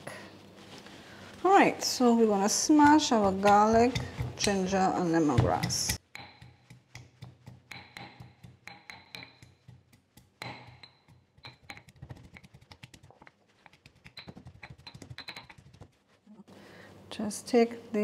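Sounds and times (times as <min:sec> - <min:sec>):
pestle pounding in stone mortar: 0:02.6 - 0:15.9.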